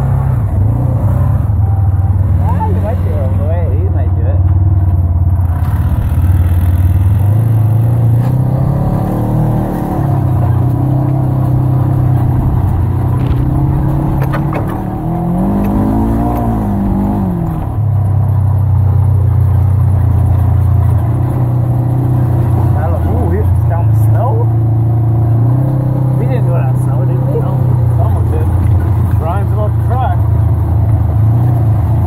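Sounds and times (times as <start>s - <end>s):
off-road vehicle engine running: 0.0s - 32.0s.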